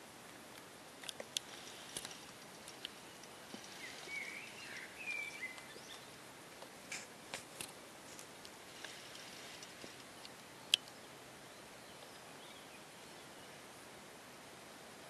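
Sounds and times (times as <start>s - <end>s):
steady hiss: 0.0s - 15.0s
small clicks and ticks: 0.3s - 11.0s
short chirping bird calls: 2.8s - 6.2s.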